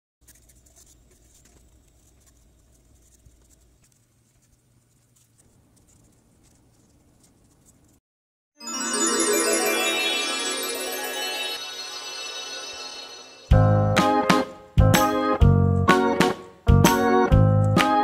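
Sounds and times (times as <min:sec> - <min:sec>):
pencil scratching on paper: 0:00.2 - 0:08.0
music: 0:08.6 - 0:18.0.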